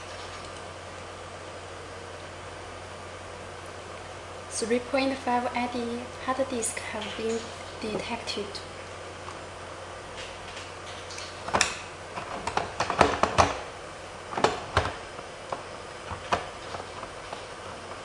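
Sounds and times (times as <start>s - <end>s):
sharp clicks and knocks: 10.1s - 13.7s, 14.3s - 18.0s.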